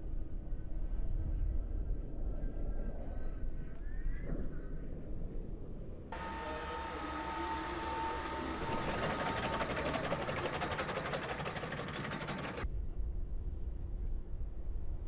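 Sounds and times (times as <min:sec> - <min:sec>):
electric car whine: 0:06.2 - 0:12.6.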